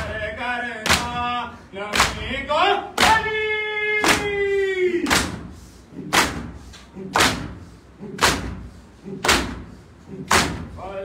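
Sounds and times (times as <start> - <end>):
hands slapping chests: 1.9 - 2.3, 5.0 - 10.7.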